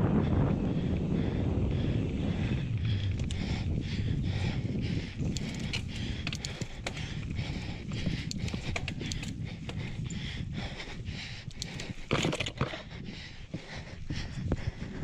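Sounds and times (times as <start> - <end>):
bike tyres rumbling over dirt: 0.0 - 10.7, 11.6 - 15.0
bike chain rattling: 2.9 - 13.2.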